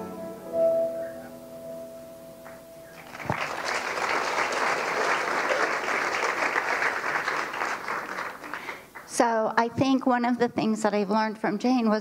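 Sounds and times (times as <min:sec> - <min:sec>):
audience applauding: 0:02.5 - 0:09.1.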